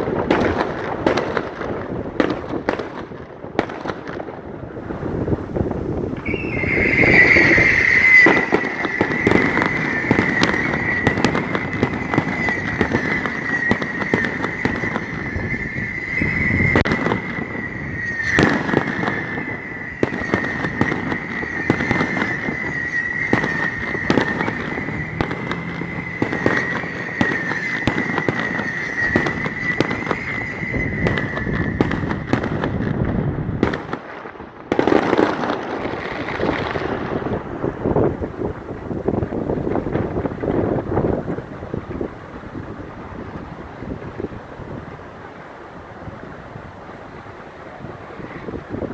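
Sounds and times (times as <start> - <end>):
fireworks bangs and crackles: 0.0 - 48.9
high whistle: 6.2 - 32.6.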